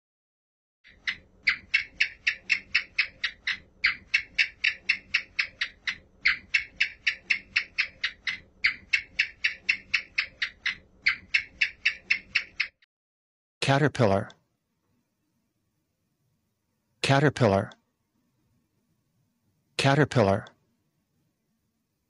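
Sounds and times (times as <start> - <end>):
gecko chirping: 0.8 - 12.8.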